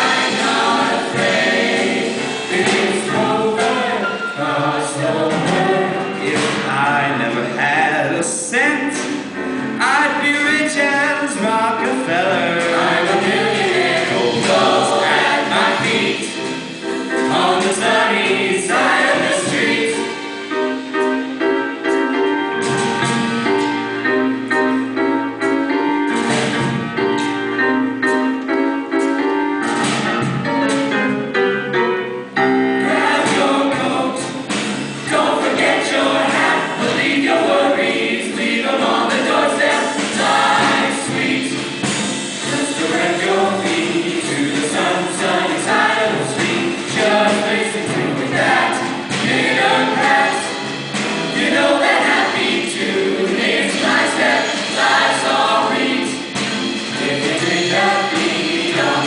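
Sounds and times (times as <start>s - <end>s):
children's choir singing: 0.0s - 7.7s, 11.9s - 20.8s, 32.8s - 59.0s
piano: 0.0s - 59.0s.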